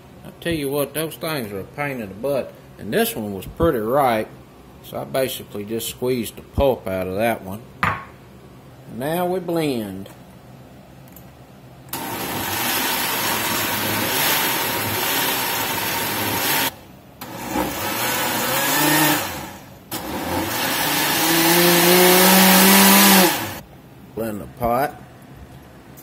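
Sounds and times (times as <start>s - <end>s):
blender motor whine: 11.9s - 23.6s.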